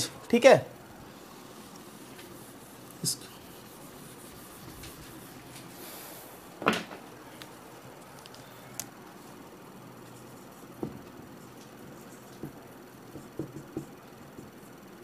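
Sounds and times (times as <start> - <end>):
duster wiping whiteboard: 1.0 - 6.3.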